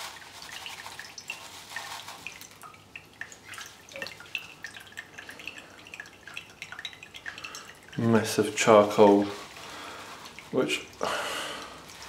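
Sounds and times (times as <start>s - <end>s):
liquid dripping into glass: 2.5s - 8.5s.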